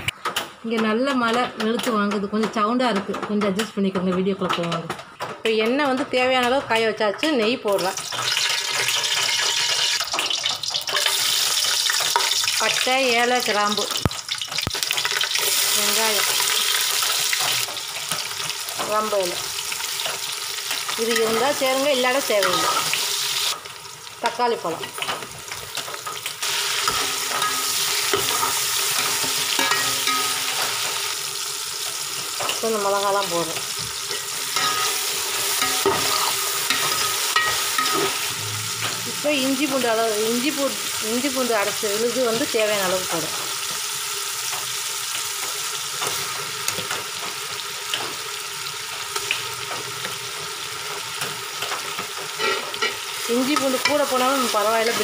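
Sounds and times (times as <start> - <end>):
onions frying in hot oil: 7.4 - 55.0
steel spoon clinking and scraping: 26.9 - 30.7, 34.1 - 38.2, 52.4 - 53.0.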